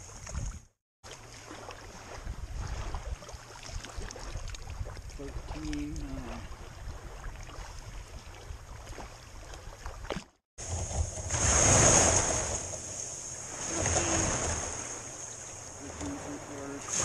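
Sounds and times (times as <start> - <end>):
small waves washing on shore: 0.0 - 17.0
water around legs: 0.0 - 17.0
wind rumble on microphone: 2.0 - 8.9.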